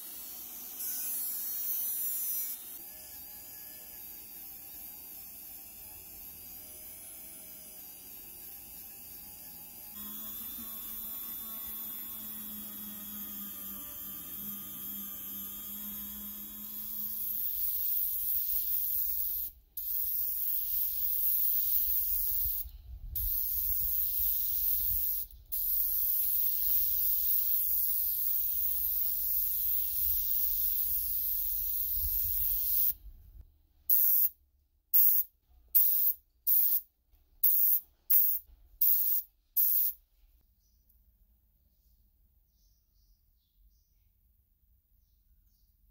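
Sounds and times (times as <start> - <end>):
rotary tool whining: 0.6 - 32.9
spray gun hissing: 16.8 - 33.0, 33.9 - 34.3, 35.0 - 36.8, 37.4 - 40.0.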